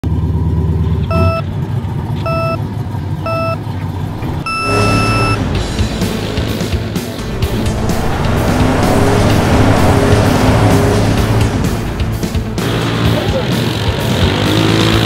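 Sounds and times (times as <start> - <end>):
go-kart engines running: 0.0 - 15.0
electronic countdown beeps: 1.1 - 1.5, 2.2 - 2.6, 3.2 - 3.6, 4.2 - 5.4.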